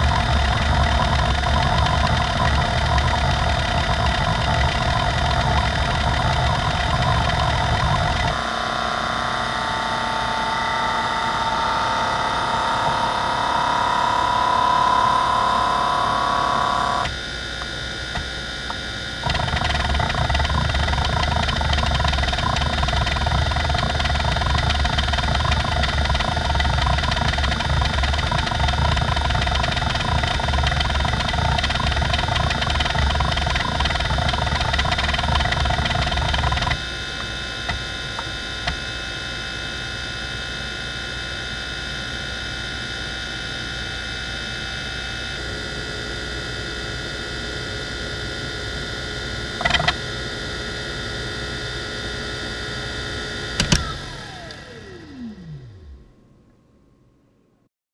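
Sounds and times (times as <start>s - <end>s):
hard drive heads seeking chatter: 0.0s - 8.4s, 16.6s - 38.9s, 49.6s - 50.0s
buzzing tone rising in pitch: 0.0s - 56.2s
spindle motor whine: 0.0s - 56.2s.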